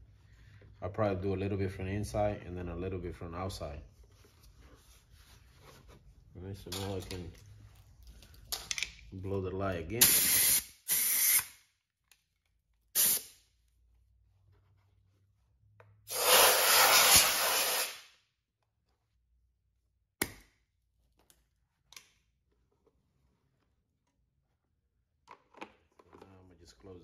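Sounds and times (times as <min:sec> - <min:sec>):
compressed air hissing: 0:10.0 - 0:11.4, 0:13.0 - 0:13.3, 0:16.1 - 0:18.1.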